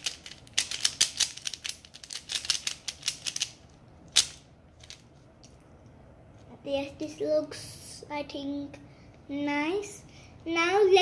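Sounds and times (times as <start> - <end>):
puzzle cube layers clicking: 0.0 - 3.6.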